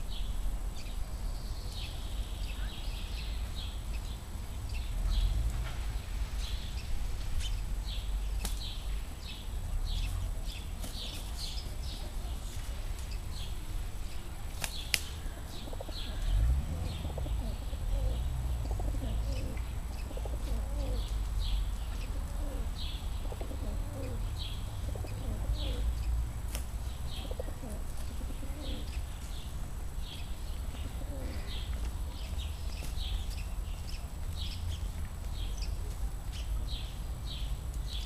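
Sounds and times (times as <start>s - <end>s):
small birds chirping: 0.0s - 38.0s
pigeons squabbling: 14.6s - 26.1s, 27.0s - 29.3s, 30.6s - 31.8s
pigeon cooing: 15.3s - 21.2s, 22.0s - 26.0s, 27.2s - 28.9s, 30.7s - 31.6s.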